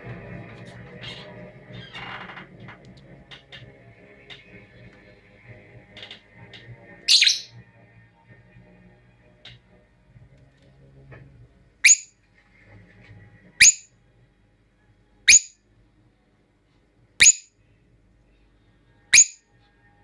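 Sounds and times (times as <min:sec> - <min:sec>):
lovebird shrill calls: 0:07.1 - 0:07.5, 0:11.8 - 0:12.1, 0:13.6 - 0:13.9, 0:15.3 - 0:15.5, 0:17.2 - 0:17.5, 0:19.2 - 0:19.4.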